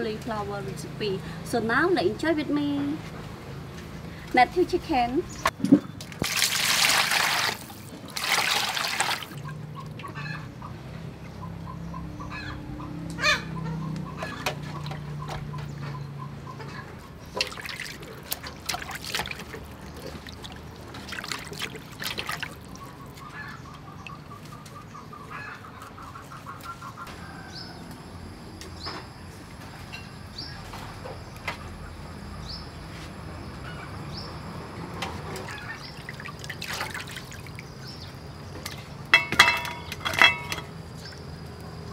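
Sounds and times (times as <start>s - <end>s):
water sloshing in metal basin: 5.4s - 10.2s, 17.0s - 24.6s, 35.0s - 41.3s
water pouring into metal pot: 6.2s - 9.4s.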